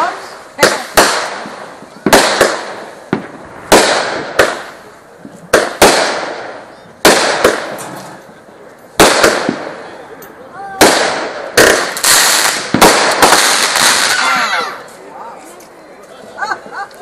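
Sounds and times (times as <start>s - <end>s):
firework bangs with echo: 0.0s - 8.3s, 8.9s - 10.0s, 10.7s - 14.9s.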